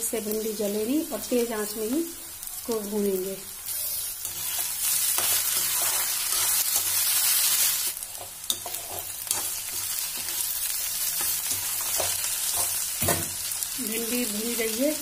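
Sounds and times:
vegetables sizzling in oil: 0.0s - 15.0s
metal spoon scraping pan: 3.7s - 7.0s, 8.2s - 10.4s.

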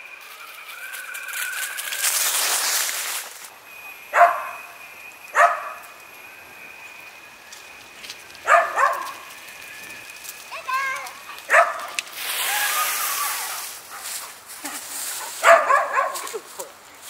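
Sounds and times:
dog barking: 4.1s - 4.6s, 5.4s - 5.8s, 8.5s - 9.2s, 11.5s - 12.0s, 15.4s - 16.3s
burst of rushing noise: 12.1s - 13.9s.

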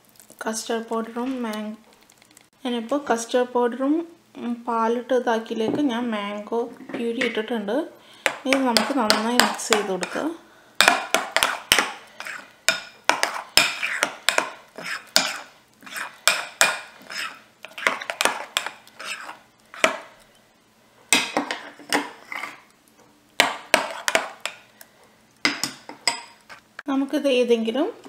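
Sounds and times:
spoon scraping a bowl: 9.7s - 10.3s, 11.1s - 20.1s, 21.4s - 22.7s, 23.7s - 24.6s, 26.0s - 26.6s.

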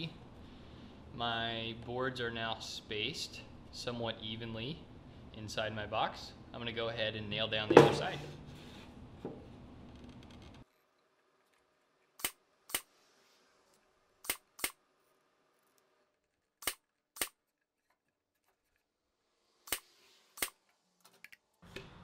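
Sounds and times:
nail gun snapping: 16.6s - 17.4s.

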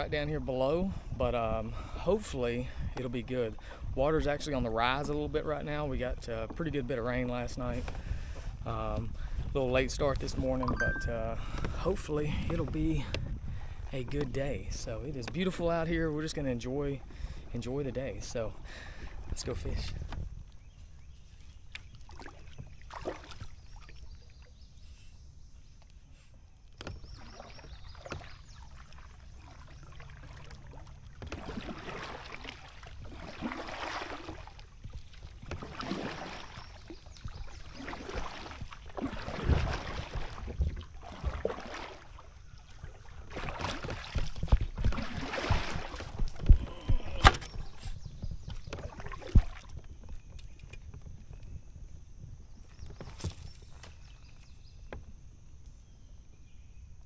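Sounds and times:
paddle splashing in water: 18.7s - 25.1s, 25.8s - 51.3s.

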